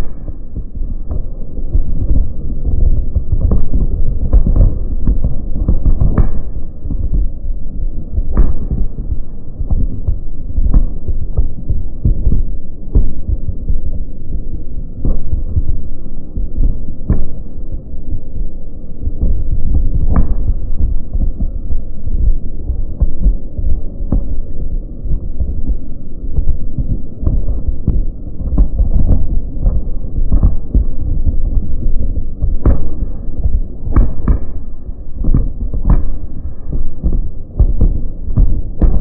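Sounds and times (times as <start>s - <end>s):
fireworks rumble: 27.3s - 39.0s.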